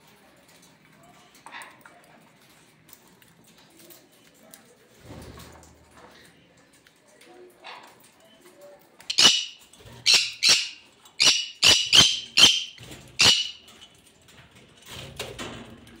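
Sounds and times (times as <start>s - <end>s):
conures squawking: 9.1s - 13.7s.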